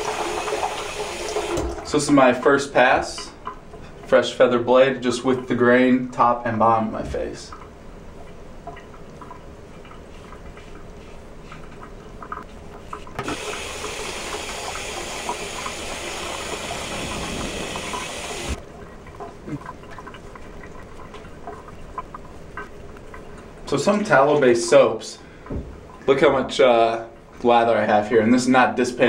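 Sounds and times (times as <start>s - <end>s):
water tap running: 0.0s - 2.4s, 13.1s - 18.6s.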